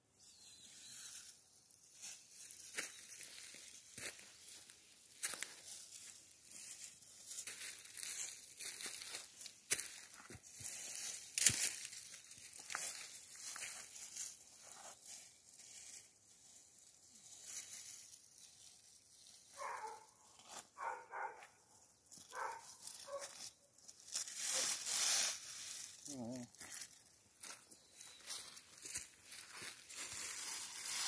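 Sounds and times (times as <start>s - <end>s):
dry stalks rustling and crackling: 0.7s - 31.0s
dog barking: 19.6s - 20.2s, 20.8s - 21.6s, 22.3s - 23.4s.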